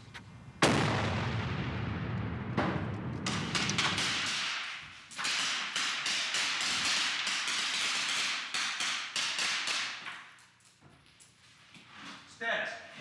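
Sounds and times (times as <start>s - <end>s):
rifle shots: 0.6s - 10.0s.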